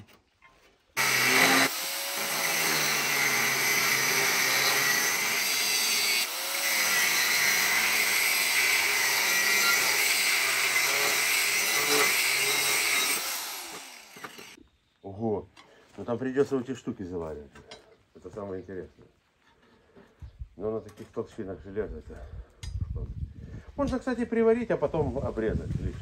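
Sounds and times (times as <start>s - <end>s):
angle grinder cutting steel: 1.0s - 14.6s.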